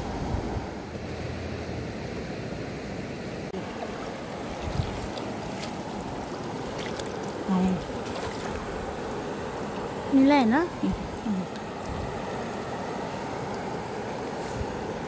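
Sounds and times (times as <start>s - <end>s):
shallow river water flowing: 0.0s - 15.0s.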